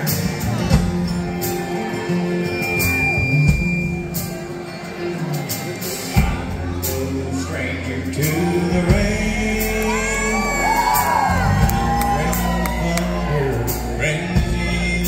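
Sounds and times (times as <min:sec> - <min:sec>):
drums: 0:00.0 - 0:15.0
guitars: 0:00.0 - 0:15.0
held bass notes: 0:00.0 - 0:15.0.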